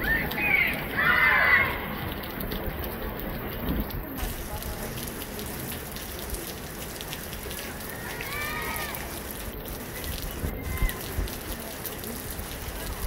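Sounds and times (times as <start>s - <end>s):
faint distant voices: 1.6s - 13.0s
wind rumble on microphone: 2.2s - 4.4s, 10.0s - 11.6s.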